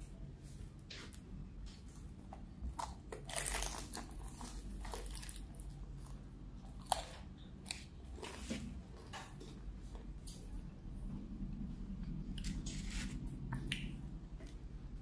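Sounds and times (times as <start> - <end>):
crunchy biting and chewing: 2.6 - 9.6.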